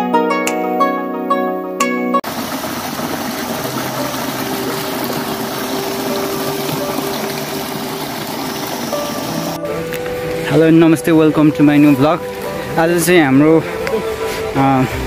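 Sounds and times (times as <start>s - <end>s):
water jet splashing into pool: 2.2s - 9.6s.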